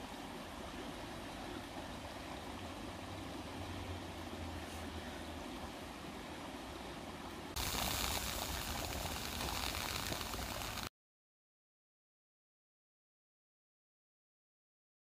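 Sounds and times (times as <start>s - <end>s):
kettle fire rushing: 7.5s - 10.9s.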